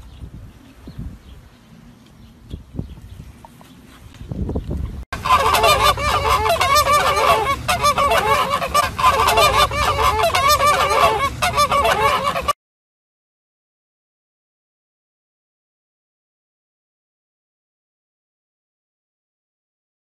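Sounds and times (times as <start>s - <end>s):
flamingos honking: 5.2s - 12.6s.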